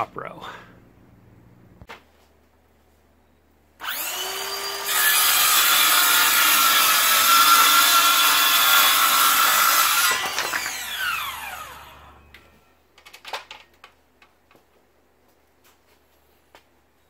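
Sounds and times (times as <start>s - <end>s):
saw blade winding down: 3.8s - 12.3s
circular saw cutting board: 3.8s - 12.4s.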